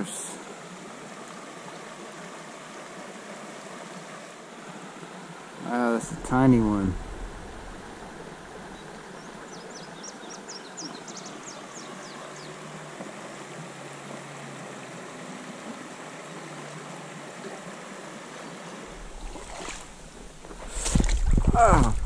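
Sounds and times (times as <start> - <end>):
river water rushing over riffle: 0.0 - 22.0
bird singing high falling notes: 6.1 - 12.5.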